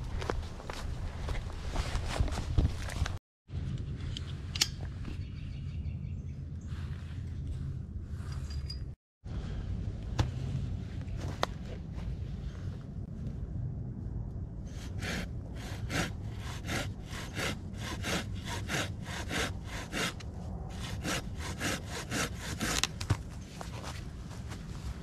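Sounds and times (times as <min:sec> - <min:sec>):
hand saw cutting wood: 0:14.8 - 0:23.0.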